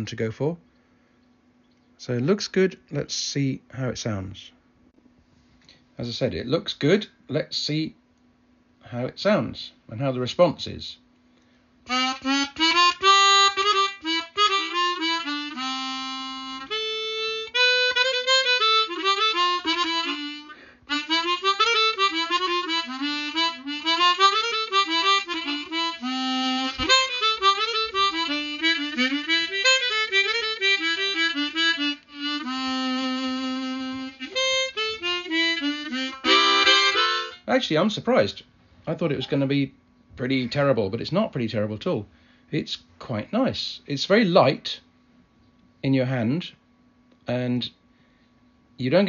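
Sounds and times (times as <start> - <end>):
chromatic harmonica playing: 11.8 - 37.5.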